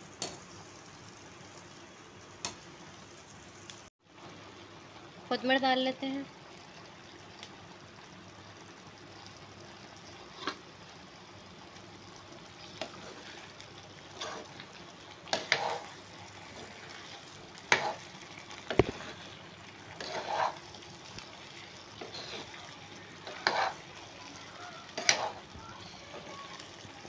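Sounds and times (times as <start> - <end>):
gravy sizzling in a pan: 0.0 - 27.0
spatula scraping and knocking pan: 15.3 - 19.2, 19.9 - 20.7, 23.2 - 24.0, 24.9 - 25.5.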